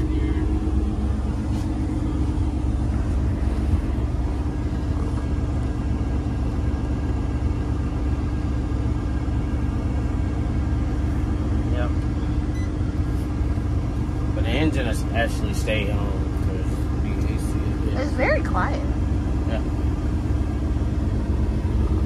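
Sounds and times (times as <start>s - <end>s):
truck diesel engine idling: 0.0s - 22.0s.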